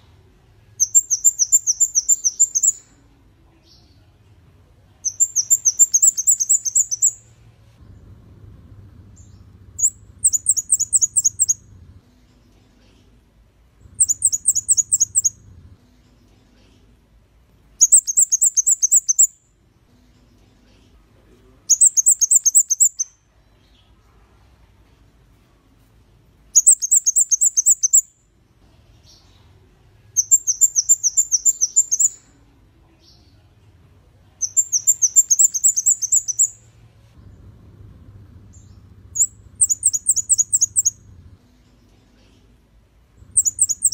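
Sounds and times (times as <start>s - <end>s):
bird singing high thin notes: 0.8s - 2.8s, 5.0s - 7.2s, 9.2s - 11.6s, 14.0s - 15.4s, 34.4s - 36.6s, 38.5s - 41.0s, 43.3s - 43.9s.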